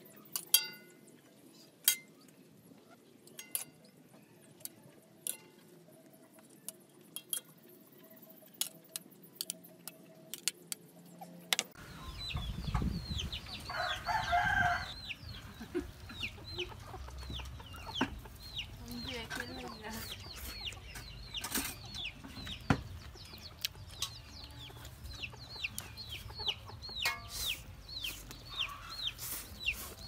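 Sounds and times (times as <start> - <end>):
utensils clinking on wok and bowl: 0.4 - 1.0, 3.3 - 3.9, 5.2 - 5.6, 27.0 - 27.7
chickens chirping: 10.8 - 30.0.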